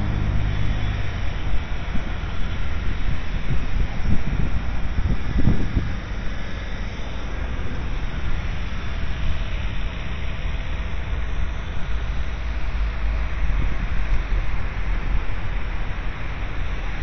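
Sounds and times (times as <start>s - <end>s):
road rumble inside vehicle: 0.0s - 17.0s
wind noise: 0.0s - 17.0s.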